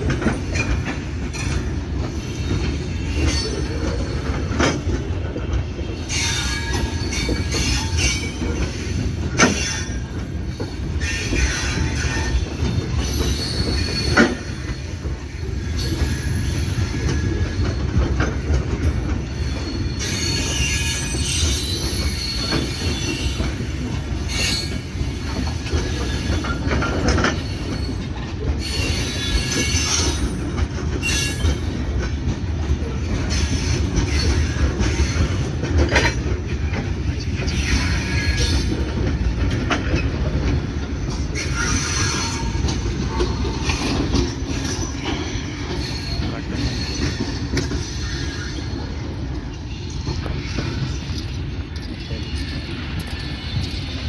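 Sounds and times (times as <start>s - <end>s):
train clanks: 0.0s - 54.0s
train wheels rumbling on rails: 0.0s - 54.0s
wheel squeals: 0.2s - 54.0s.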